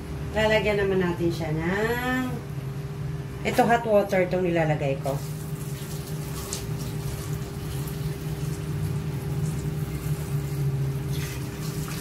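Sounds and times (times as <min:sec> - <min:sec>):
steady low hum: 0:00.0 - 0:12.0
water pouring and splashing: 0:05.1 - 0:12.0.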